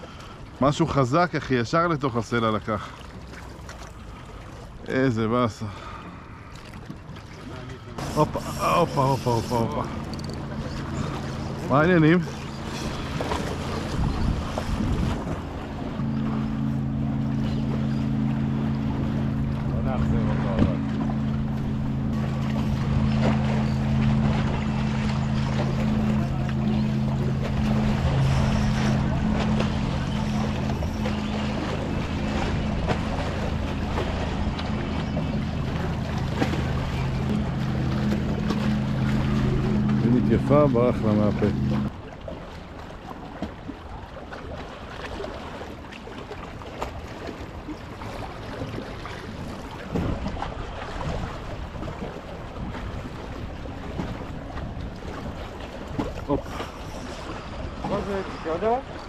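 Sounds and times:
droning motor hum: 0:00.0 - 0:59.0
waves lapping against rocks: 0:00.0 - 0:59.0
wind rumbling on microphone: 0:08.3 - 0:41.9
wind on microphone: 0:12.6 - 0:16.4.

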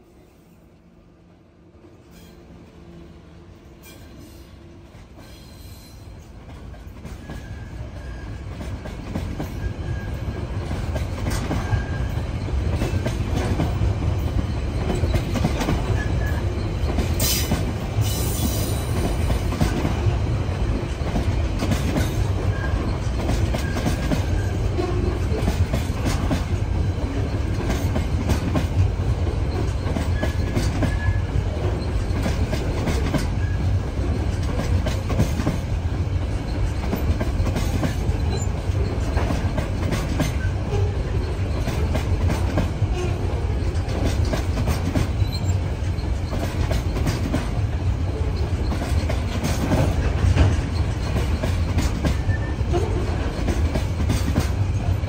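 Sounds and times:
freight train rumbling past: 0:00.0 - 0:55.0
wheels clattering over rail joints: 0:06.3 - 0:55.0
wheel squeal: 0:07.2 - 0:08.4, 0:09.4 - 0:10.5, 0:11.6 - 0:13.1, 0:14.4 - 0:19.3, 0:22.1 - 0:25.2, 0:29.4 - 0:32.4, 0:33.2 - 0:34.5, 0:44.8 - 0:47.2, 0:48.2 - 0:53.4.

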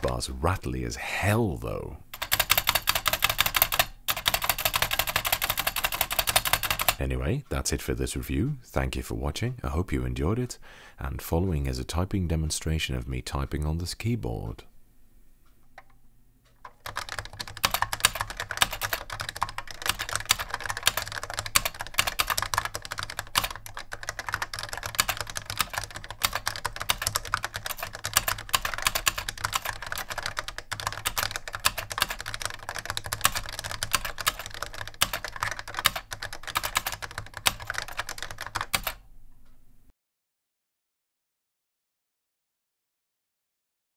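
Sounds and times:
clacky keyboard typing: 0:00.0 - 0:00.3, 0:02.1 - 0:07.1, 0:16.5 - 0:39.0.

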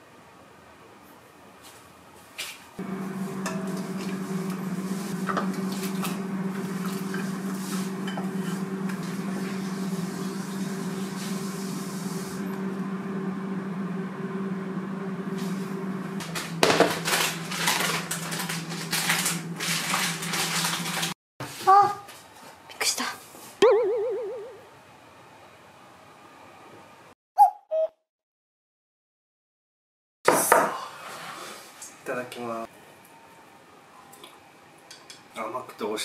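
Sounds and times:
steady low hum: 0:02.8 - 0:21.1.

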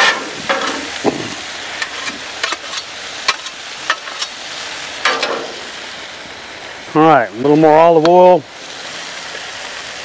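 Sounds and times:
metal spatulas scraping and clacking: 0:00.0 - 0:01.0, 0:01.8 - 0:04.4, 0:05.1 - 0:05.6
vegetables sizzling on a griddle: 0:00.0 - 0:10.0.

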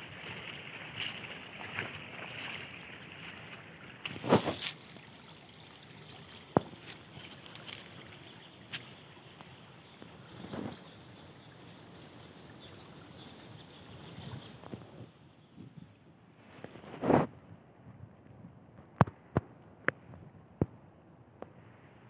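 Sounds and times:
footsteps on dry leaves: 0:00.0 - 0:04.9, 0:06.7 - 0:08.1
stream water trickling: 0:00.0 - 0:17.2.

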